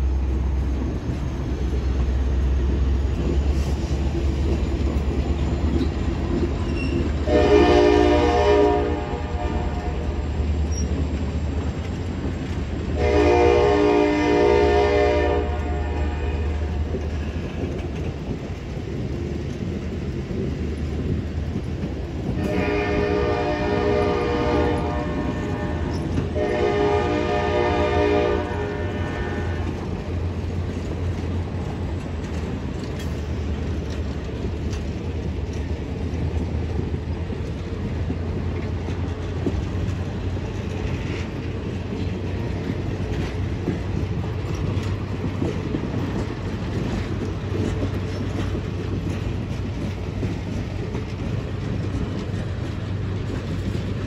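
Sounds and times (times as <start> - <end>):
train cars rumbling past: 0.0 - 54.0
locomotive air horn blasts: 7.2 - 10.2, 13.0 - 17.0, 22.3 - 29.8
wheel clicks over rail joints: 29.6 - 54.0.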